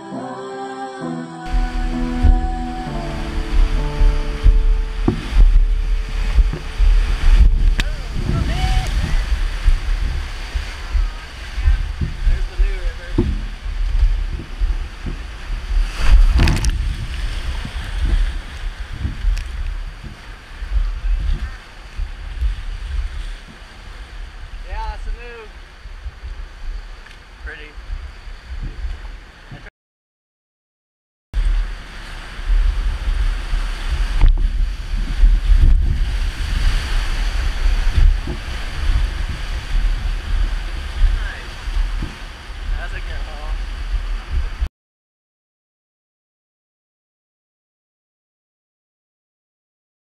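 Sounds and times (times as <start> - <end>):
whitewater rapids rushing: 1.5 - 24.0
water splashing: 1.5 - 27.3, 31.4 - 44.7
wind buffeting microphone: 1.5 - 29.7, 31.4 - 44.7.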